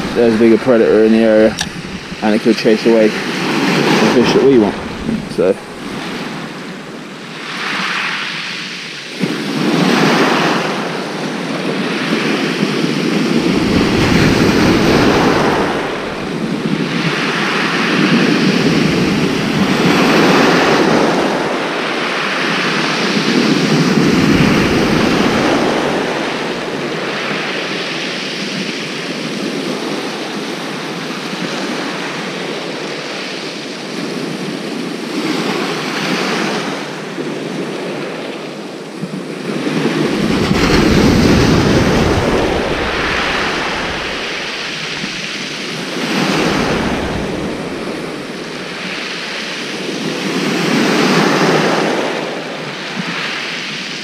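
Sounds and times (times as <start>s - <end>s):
surf breaking on shingle beach: 0.0s - 6.8s, 12.0s - 28.4s, 39.3s - 54.0s
wind buffeting microphone: 0.0s - 7.5s, 9.1s - 31.0s, 36.7s - 54.0s.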